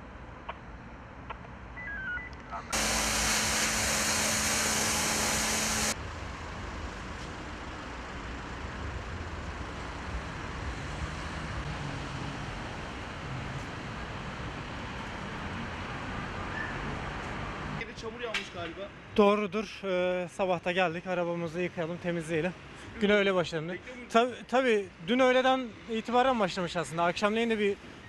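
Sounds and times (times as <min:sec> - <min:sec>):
steady pump hum: 0:02.7 - 0:06.0
foam brush spraying with hiss: 0:02.8 - 0:06.0
traffic rumble: 0:05.9 - 0:18.2.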